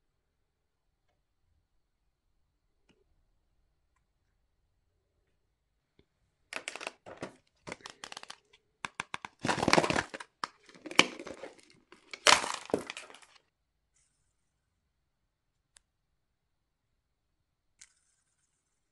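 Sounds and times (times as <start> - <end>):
plastic egg cracking open: 6.6 - 13.4.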